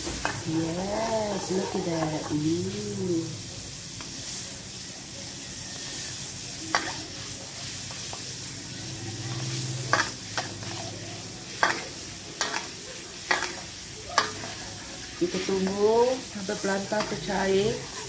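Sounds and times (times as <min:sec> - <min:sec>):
margarine sizzling in a wok: 0:00.0 - 0:18.0
metal ladle scraping a wok: 0:07.6 - 0:18.0.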